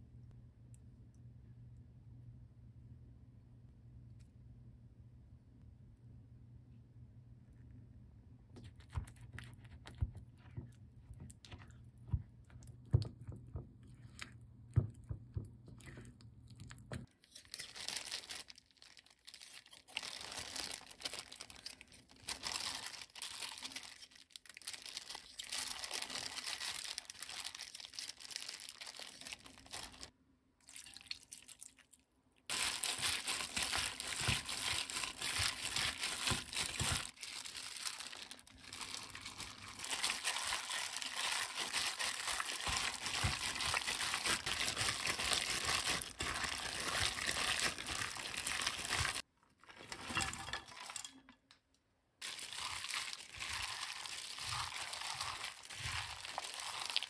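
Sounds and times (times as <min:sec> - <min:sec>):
plastic glove crinkling: 0:15.9 - 0:30.1, 0:32.5 - 0:51.1, 0:52.2 - 0:57.0
spatula stirring in glass bowl: 0:52.6 - 0:57.0.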